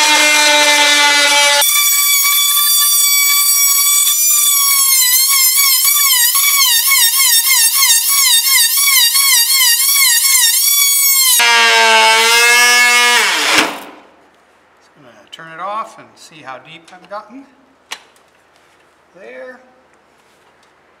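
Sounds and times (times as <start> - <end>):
oscillating saw cutting wood: 0.0 - 13.7.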